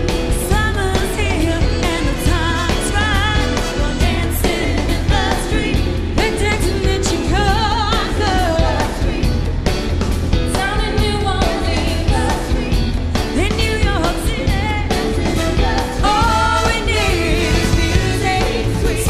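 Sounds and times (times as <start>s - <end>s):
bass: 0.0s - 19.0s
drum beat: 0.0s - 19.0s
woman singing with vibrato: 0.1s - 9.6s, 10.4s - 19.0s
backing singers: 0.4s - 19.0s.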